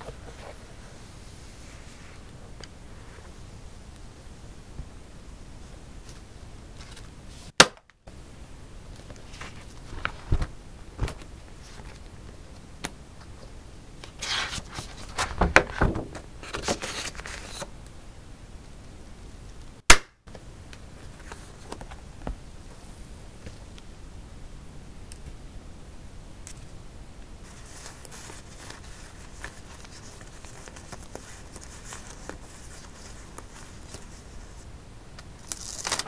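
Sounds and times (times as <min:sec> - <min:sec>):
paper and card rustling: 0:00.0 - 0:01.0, 0:09.1 - 0:12.1, 0:14.0 - 0:17.7, 0:27.4 - 0:34.7, 0:35.3 - 0:36.0.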